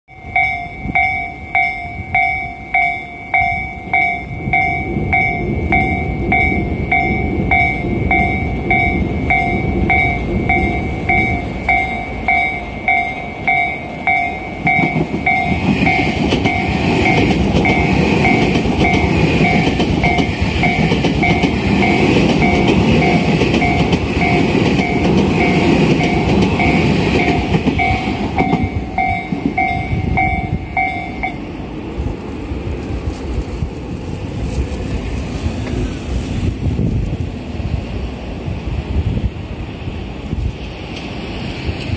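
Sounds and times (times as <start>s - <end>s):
level-crossing warning bell: 0.1s - 31.6s
electric train rumbling past: 0.1s - 41.9s.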